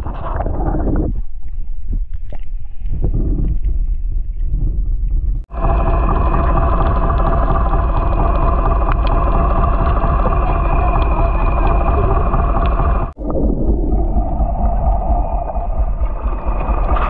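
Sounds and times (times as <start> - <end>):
underwater rumble of moving water: 0.0 - 17.0
boat engine droning underwater: 5.5 - 17.0
underwater clicks: 5.5 - 17.0.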